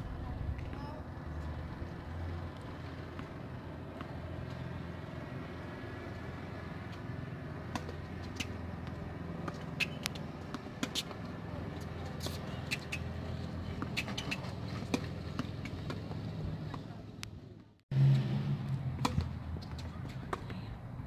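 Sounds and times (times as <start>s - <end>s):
tennis ball impacts: 6.2s - 16.9s, 18.8s - 20.6s.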